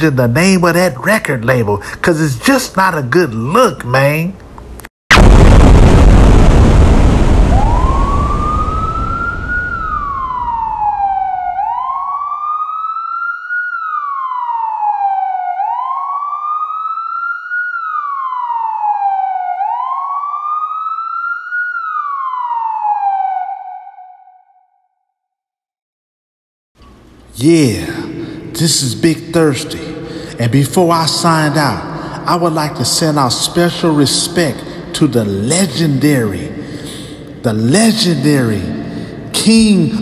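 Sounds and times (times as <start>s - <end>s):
loud burst of noise: 5.1s - 10.6s
emergency siren wailing: 7.0s - 24.6s.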